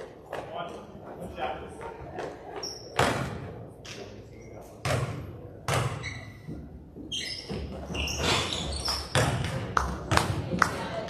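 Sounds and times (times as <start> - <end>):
basketball bouncing on gym floor: 2.2 - 3.5, 4.8 - 10.8
sneakers squeaking on court: 2.2 - 9.7.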